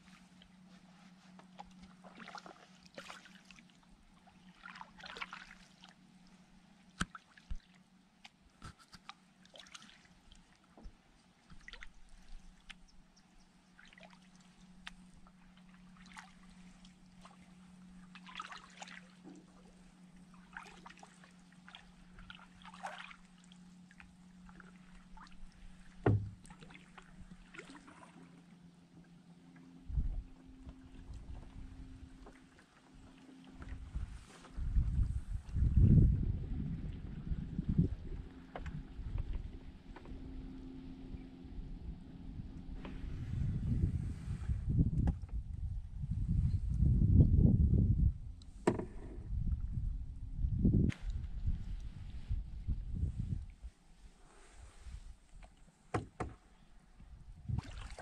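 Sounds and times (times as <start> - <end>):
paddle swishing in water: 0.0 - 13.0, 13.6 - 41.3, 42.4 - 45.4, 50.9 - 56.8, 57.5 - 58.0
faint steady hum: 0.0 - 58.0
knock against canoe: 26.0 - 26.4, 48.6 - 49.2, 55.9 - 56.4.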